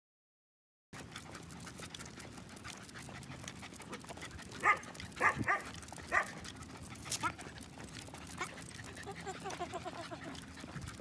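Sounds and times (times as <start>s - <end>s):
dog barking: 4.6s - 6.4s.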